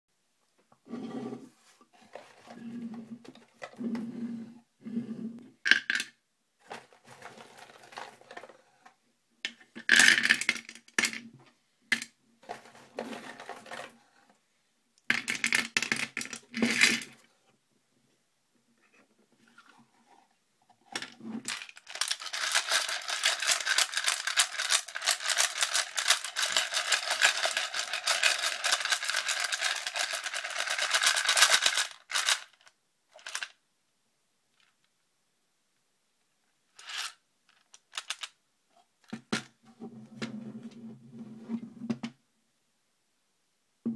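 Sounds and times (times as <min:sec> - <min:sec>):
cartridges rattling in plastic tray: 0:21.0 - 0:32.6.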